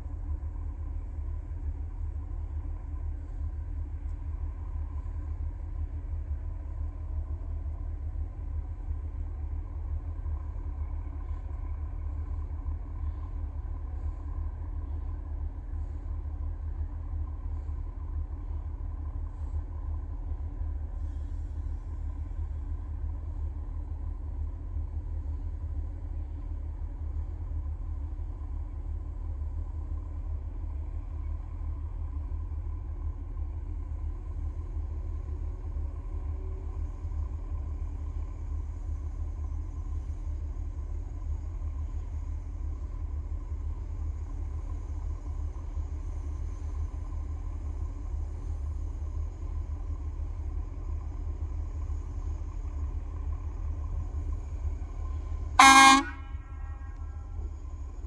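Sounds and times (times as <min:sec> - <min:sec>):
engine hum: 0:00.0 - 0:58.0
rail vehicle rumbling: 0:00.0 - 0:58.0
vehicle horn: 0:55.6 - 0:57.0.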